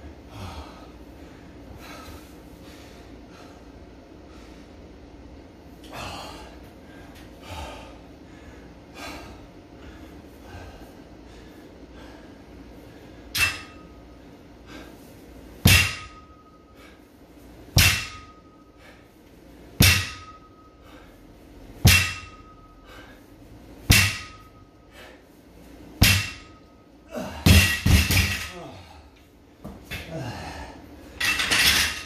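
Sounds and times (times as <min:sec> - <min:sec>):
metallic ring of bar and plates: 0:13.3 - 0:14.1, 0:15.7 - 0:16.7, 0:17.8 - 0:18.8, 0:19.8 - 0:20.8, 0:21.8 - 0:22.8, 0:23.9 - 0:24.8, 0:26.0 - 0:26.8, 0:27.4 - 0:28.6, 0:31.2 - 0:32.0
barbell thudding on rubber floor: 0:15.6 - 0:16.4, 0:17.7 - 0:18.4, 0:19.8 - 0:20.4, 0:21.8 - 0:22.5, 0:23.9 - 0:24.5, 0:26.0 - 0:26.6, 0:27.4 - 0:28.5.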